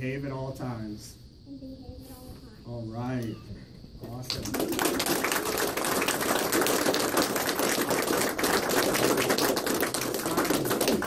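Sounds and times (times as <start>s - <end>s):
people applauding: 4.1s - 11.0s.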